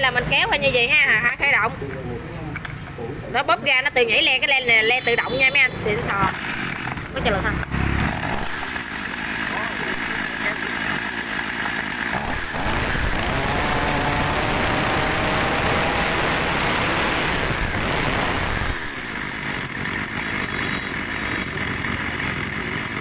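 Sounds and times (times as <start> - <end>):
chainsaw idling and revving: 6.2 - 23.0.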